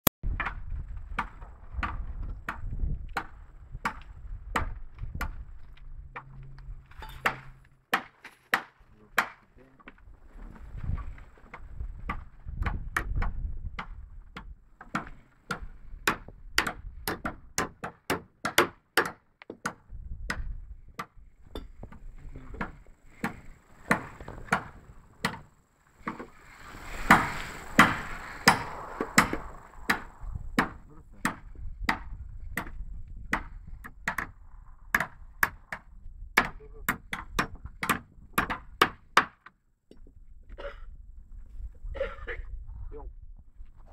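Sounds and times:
hammer striking timber planks: 7.2 - 9.5, 12.1 - 26.4, 27.0 - 34.3, 34.9 - 39.6.

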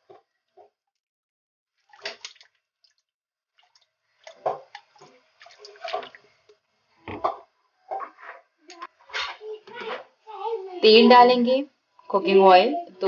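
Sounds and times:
liquid pouring and splashing: 1.7 - 6.4.

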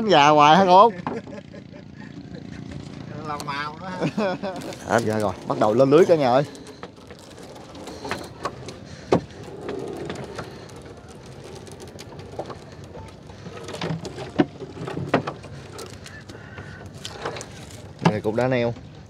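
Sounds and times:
knocks and clatter of fishing net: 4.5 - 18.9.

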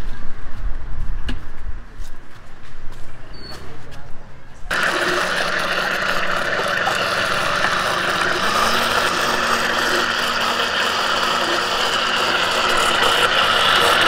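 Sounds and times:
blenders whirring: 4.7 - 14.0.

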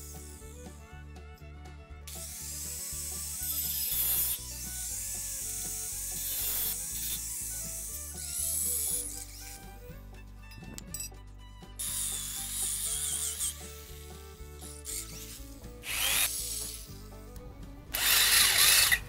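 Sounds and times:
electric drill boring through steel: 0.0 - 0.8, 2.1 - 9.9, 11.8 - 17.0, 17.9 - 19.0.

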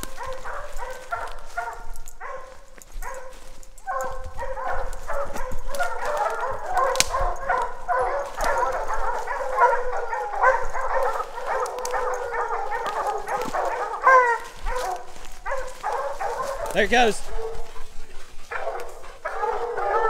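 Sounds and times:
hounds baying: 0.0 - 20.0
dog bawling: 3.9 - 17.7, 18.4 - 20.0.

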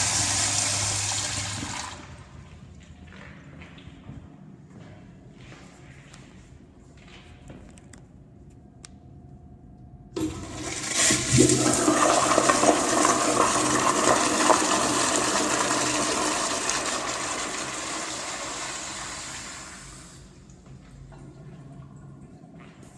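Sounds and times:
toilet flushing: 0.0 - 2.4, 10.2 - 20.4.

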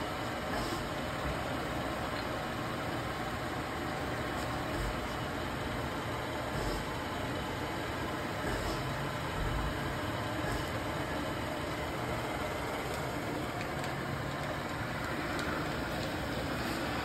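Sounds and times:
machine hum: 0.0 - 17.0.

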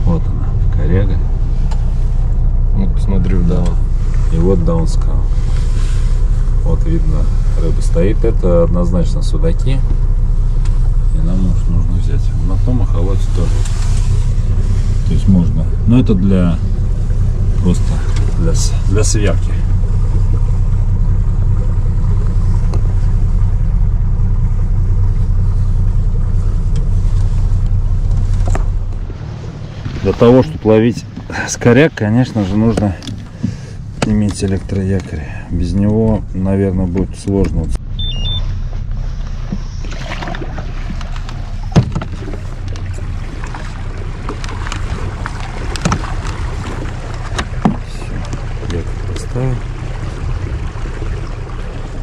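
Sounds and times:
motorboat engine running: 0.0 - 52.0
high electronic beep: 37.9 - 38.5.

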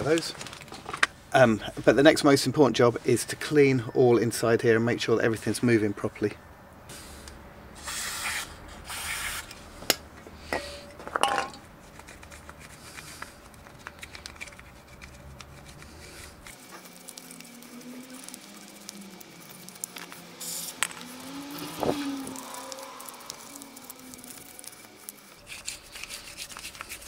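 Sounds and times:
aerosol spray hissing: 18.1 - 24.0.

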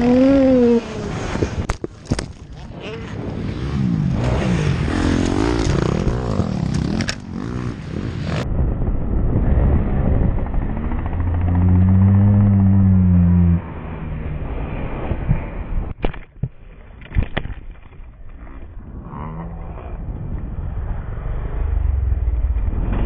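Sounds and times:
motocross engine revving: 0.0 - 1.6, 2.6 - 8.4, 9.4 - 14.2.

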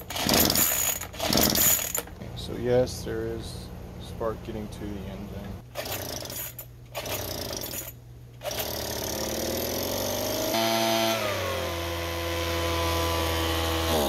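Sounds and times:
leaf blower engine starting: 8.4 - 14.0.

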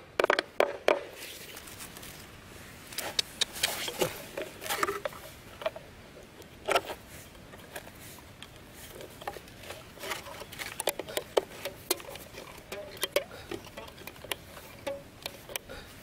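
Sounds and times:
fingers rustling over stick: 1.0 - 16.0.

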